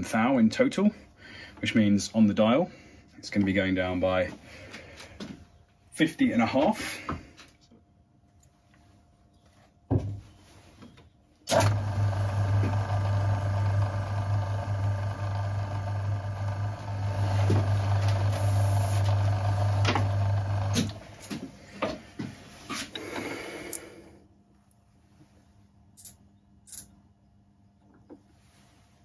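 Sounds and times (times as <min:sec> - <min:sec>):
metal lathe running: 0:11.5 - 0:21.0.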